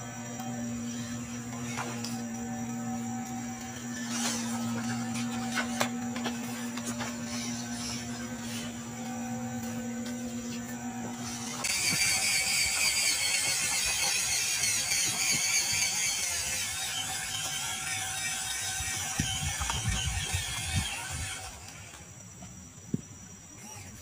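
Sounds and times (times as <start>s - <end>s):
toy truck motor whirring: 0.0s - 22.1s
gear-like rattle: 11.2s - 21.5s.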